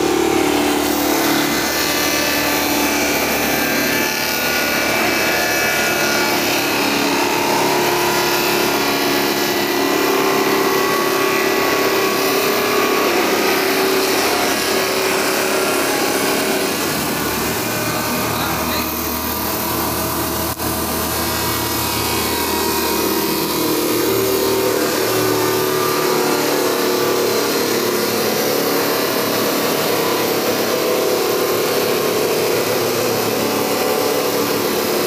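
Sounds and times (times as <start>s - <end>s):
machine grinding wood: 0.0s - 35.0s.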